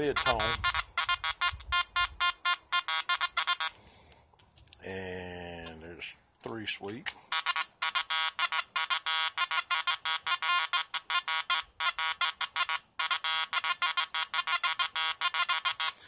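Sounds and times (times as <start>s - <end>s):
metal detector beeping: 0.0s - 3.8s, 7.2s - 16.0s.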